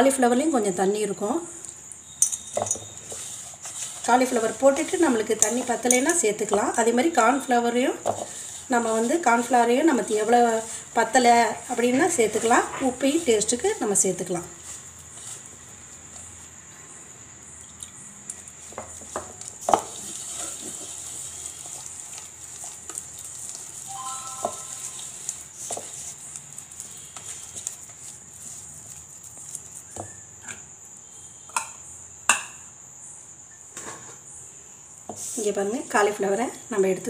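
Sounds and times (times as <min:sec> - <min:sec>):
cricket trill: 0:00.0 - 0:37.0
hand squishing paste: 0:20.8 - 0:30.0.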